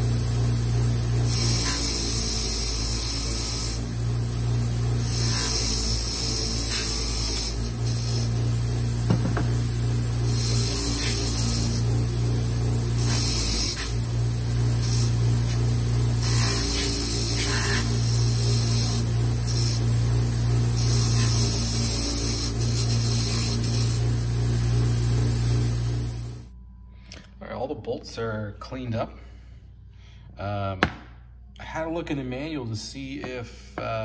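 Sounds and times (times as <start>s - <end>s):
bench grinder running: 0.0s - 26.5s.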